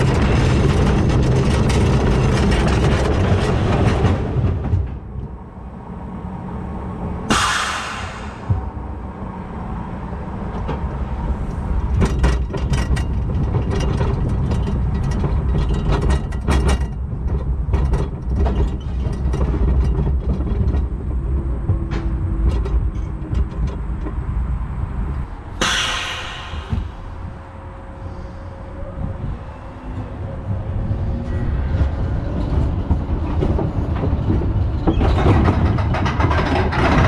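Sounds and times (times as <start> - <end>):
clattering and rattling: 0.0 - 5.3, 11.9 - 24.3, 31.8 - 37.0
roller coaster wheels rumbling: 0.0 - 37.0
loud hiss: 7.3 - 8.6, 25.6 - 27.4.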